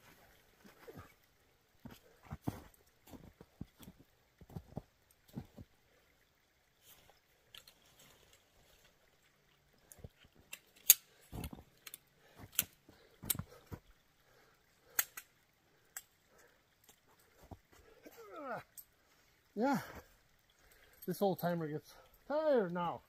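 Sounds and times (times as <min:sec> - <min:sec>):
tent pole clicking and knocking: 0:10.0 - 0:13.8.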